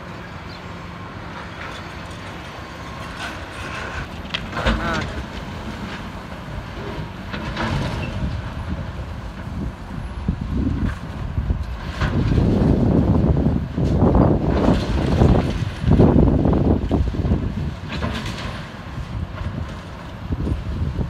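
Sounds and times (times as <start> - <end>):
hydraulic excavator running: 0.0 - 21.0
debris crashing and scraping: 11.8 - 20.0.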